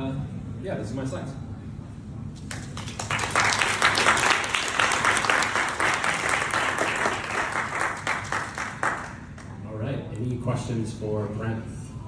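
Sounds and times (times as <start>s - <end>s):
audience applauding: 2.4s - 9.6s.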